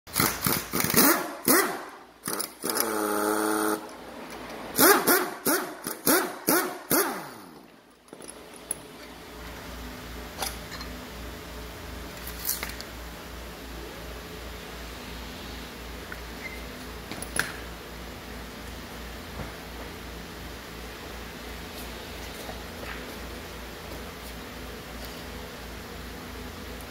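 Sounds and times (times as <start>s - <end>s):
metal parts clicking: 12.2s - 12.9s.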